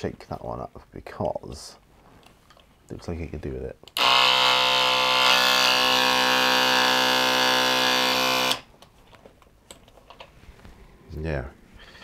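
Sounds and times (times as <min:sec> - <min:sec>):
electric paint shaker buzzing: 0:04.0 - 0:08.6.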